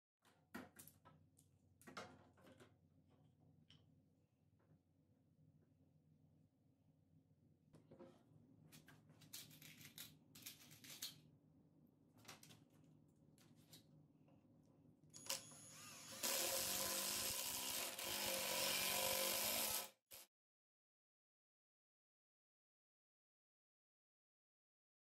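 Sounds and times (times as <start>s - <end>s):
impact driver driving screw: 15.2s - 20.2s.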